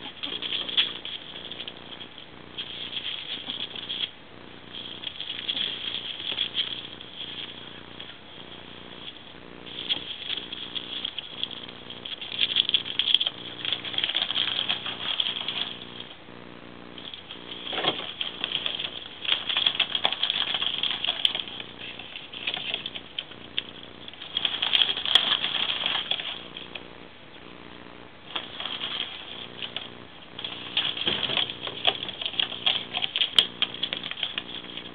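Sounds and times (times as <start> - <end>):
foil duct hose crinkling and rattling: 0.0 - 16.3, 16.9 - 26.9, 28.2 - 34.9.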